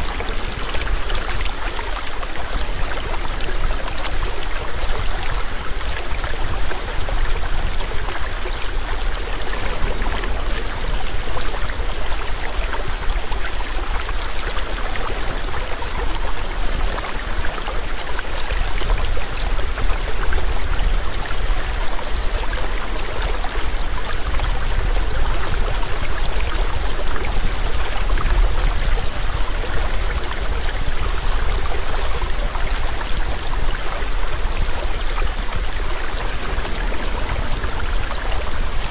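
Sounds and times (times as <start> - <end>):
waterfall rushing: 28.8 - 38.9.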